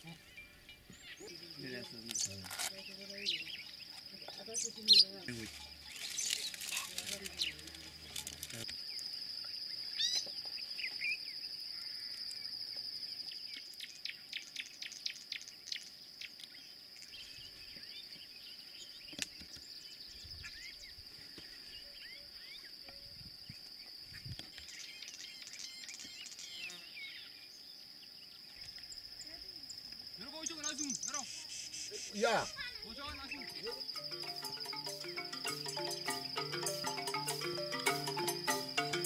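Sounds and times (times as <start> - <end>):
bird chirps: 0.0 - 9.0, 9.6 - 21.0, 30.2 - 39.0
insects droning: 0.0 - 39.0.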